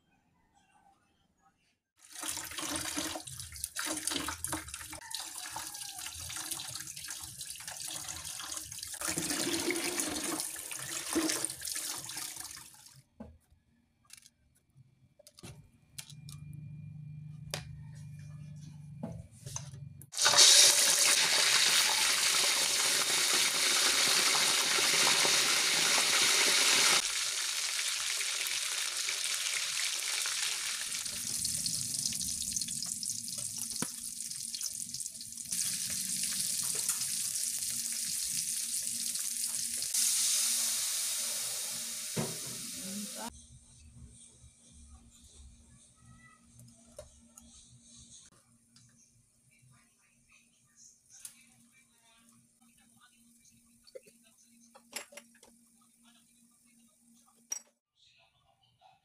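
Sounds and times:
tap water running and splashing: 0:02.0 - 0:13.0, 0:20.2 - 0:43.3
faint low hum: 0:13.5 - 0:20.1
fish sizzling in hot oil: 0:20.2 - 0:43.3.

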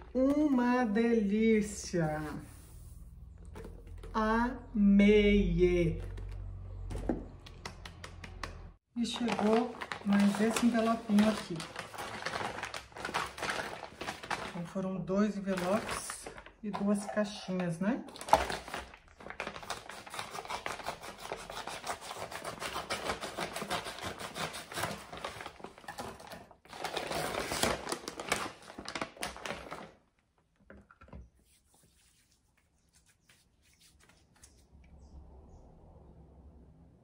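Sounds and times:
envelope being torn open: 0:09.1 - 0:14.6, 0:18.1 - 0:25.9, 0:26.7 - 0:30.0.

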